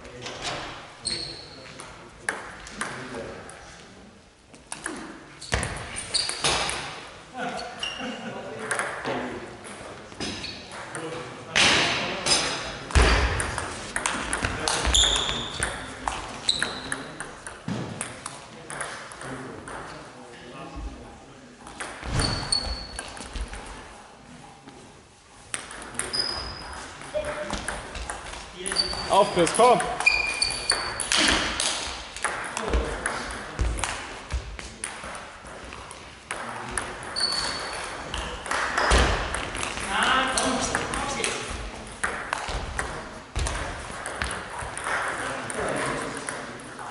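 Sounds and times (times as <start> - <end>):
high squeaks: 1.0 - 1.6, 5.4 - 6.5, 14.9 - 15.7, 28.6 - 31.2, 37.1 - 37.9
sneaker squeak on floor: 1.0 - 1.8, 5.4 - 6.8, 7.8 - 8.2, 10.2 - 10.7, 14.8 - 15.8, 16.4 - 17.0, 22.0 - 23.2, 26.0 - 27.4, 28.7 - 29.4, 30.0 - 31.3, 37.1 - 37.9
table tennis balls ticking: 13.3 - 20.0, 25.5 - 34.0, 34.8 - 46.9.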